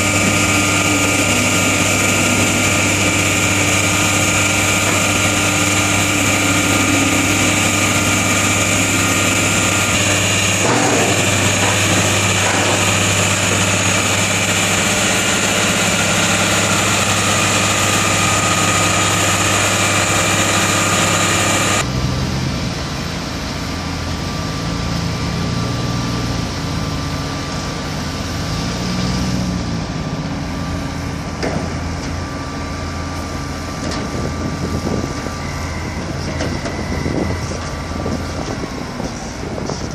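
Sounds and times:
high steady whine: 0:00.0 - 0:21.9, 0:30.8 - 0:39.9
diesel engine running: 0:00.0 - 0:39.9.

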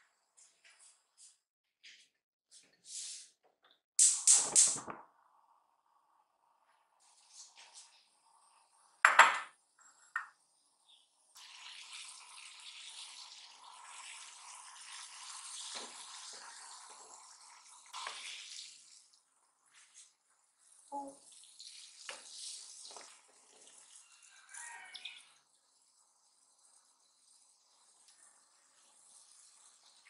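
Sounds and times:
water boiling in a saucepan: 0:05.0 - 0:30.0.

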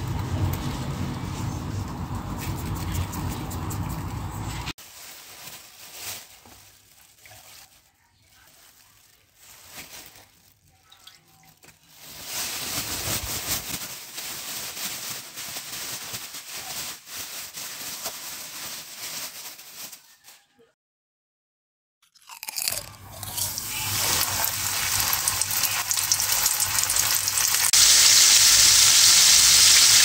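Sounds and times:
plastic bag crinkling and shaking: 0:04.8 - 0:20.4, 0:22.6 - 0:27.8.

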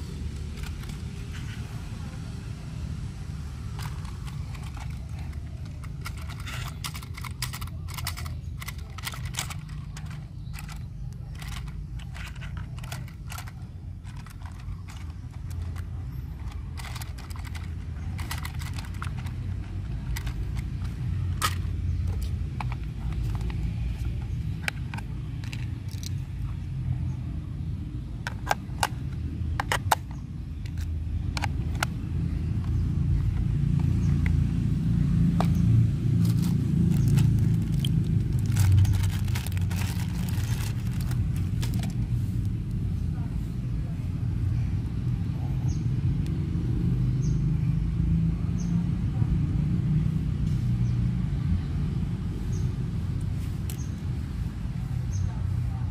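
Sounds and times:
plastic clicks and taps: 0:28.2 - 0:32.0.

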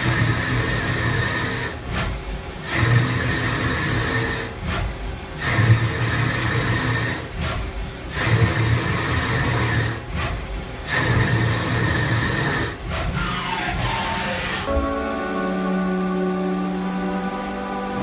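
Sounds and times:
lathe cutting steel: 0:10.9 - 0:18.0
spindle whine: 0:13.2 - 0:18.0.

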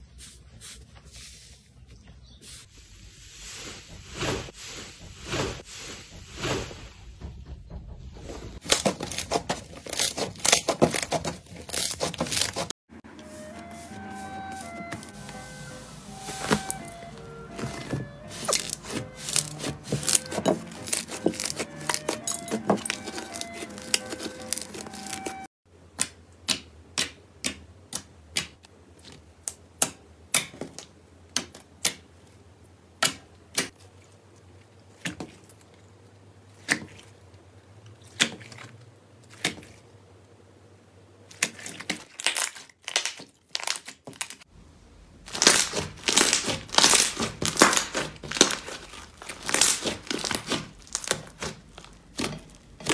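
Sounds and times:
slime crackling: 0:16.2 - 0:25.4, 0:45.2 - 0:52.9.

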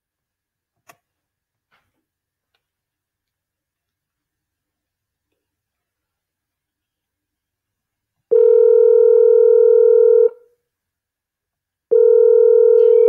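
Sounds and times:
telephone ringback tone: 0:08.3 - 0:10.4, 0:11.9 - 0:13.0.

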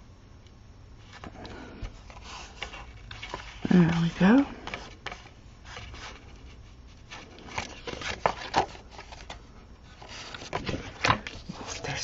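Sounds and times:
paper rustling and scraping: 0:01.1 - 0:12.0.

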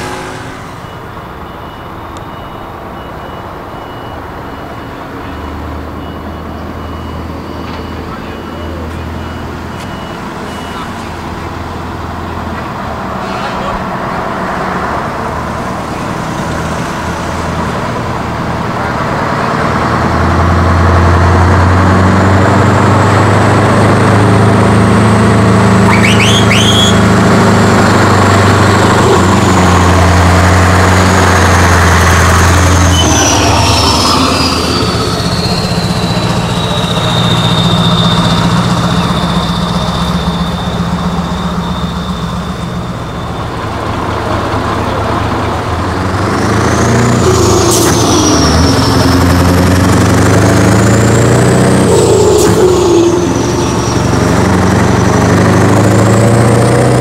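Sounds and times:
truck diesel engine running: 0:00.0 - 0:57.0
brief squeaks: 0:32.4 - 0:40.7.

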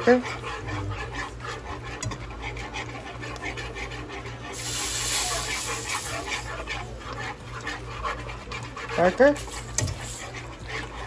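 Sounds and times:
whisk scraping in a pan: 0:00.0 - 0:11.0.

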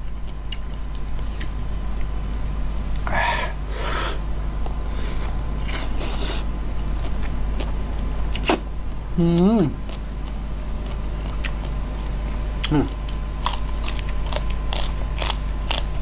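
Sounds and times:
steady low hum: 0:00.0 - 0:16.0
slurping and mouth noise: 0:04.9 - 0:06.5.

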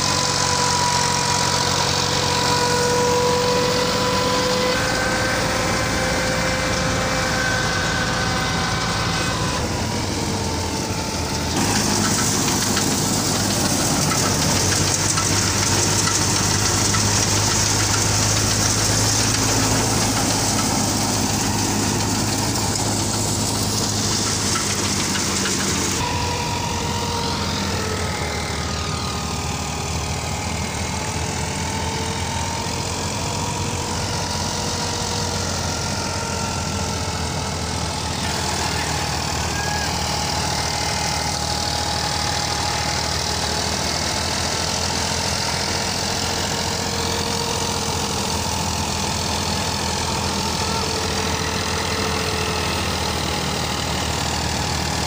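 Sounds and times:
thresher turning: 0:00.0 - 0:55.0
tractor diesel engine running: 0:00.0 - 0:55.0
grain and chaff pouring hiss: 0:11.4 - 0:26.0.

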